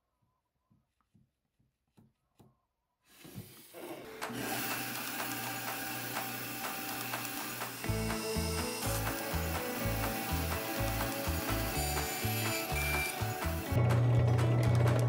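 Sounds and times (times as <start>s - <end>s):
bandsaw running: 3.2s - 15.0s.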